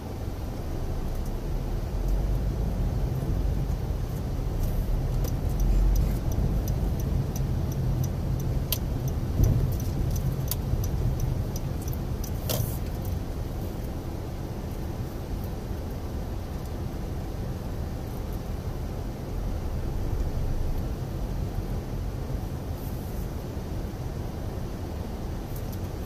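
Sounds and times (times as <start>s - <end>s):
car road and engine rumble: 0.0s - 26.0s
light regular ticks: 5.1s - 13.2s.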